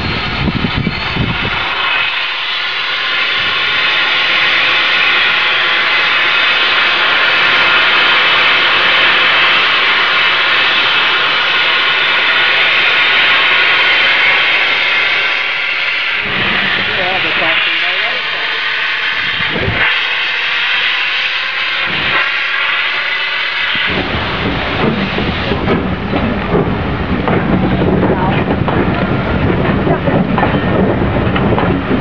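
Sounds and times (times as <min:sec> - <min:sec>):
steam locomotive venting steam: 0:00.0 - 0:32.0.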